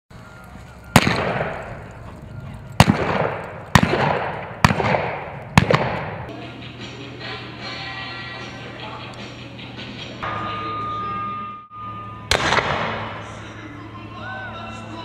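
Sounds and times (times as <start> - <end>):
revolver shots echoing: 1.0 - 1.7, 2.8 - 6.3, 12.3 - 13.3
faint music: 6.2 - 15.0.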